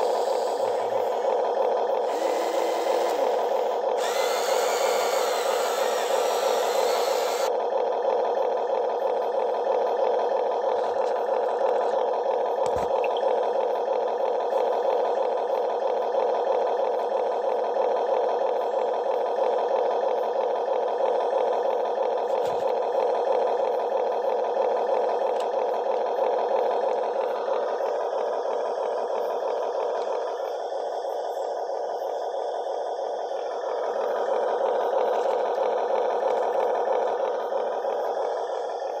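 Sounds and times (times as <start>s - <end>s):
small electric motors whirring: 0.0s - 7.5s.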